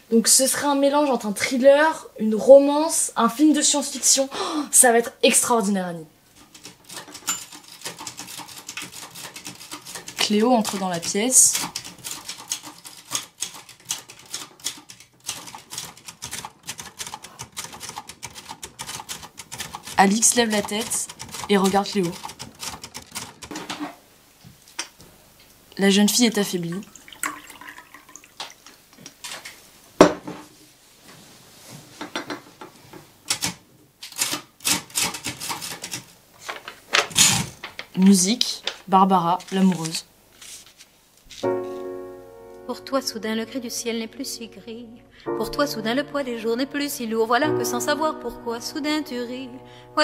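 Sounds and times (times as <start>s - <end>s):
typewriter key clacks: 6.4s - 23.9s, 33.3s - 36.1s
tea trickling into cup: 26.8s - 28.8s.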